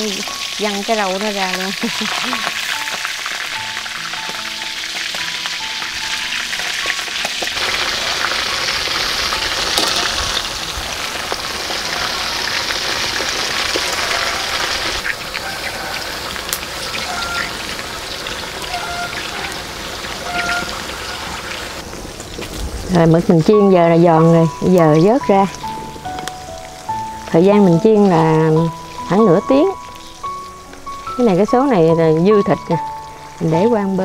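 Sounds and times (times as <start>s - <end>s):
soft background music: 0.0s - 14.8s, 21.9s - 34.0s
food sizzling in hot oil: 0.0s - 34.0s.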